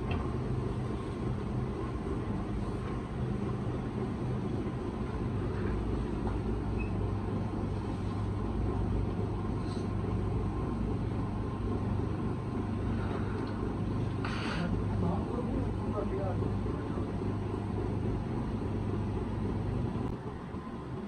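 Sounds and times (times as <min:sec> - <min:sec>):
low mechanical hum and rumble: 0:00.0 - 0:21.0.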